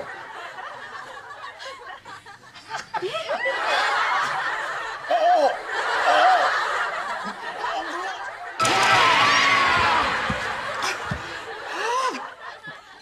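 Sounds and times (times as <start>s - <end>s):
women laughing and giggling: 0.0s - 8.5s.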